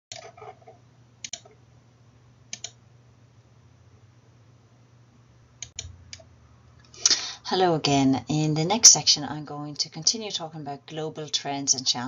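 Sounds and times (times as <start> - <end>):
faint low hum: 0.1 - 12.0
computer mouse clicks: 1.2 - 1.6, 2.5 - 2.8, 5.6 - 6.3.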